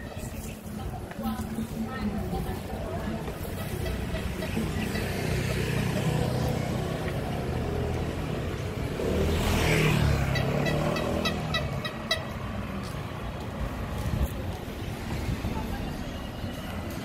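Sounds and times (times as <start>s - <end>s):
vehicle engines running: 0.0s - 17.0s
vehicle passing close: 4.2s - 12.9s.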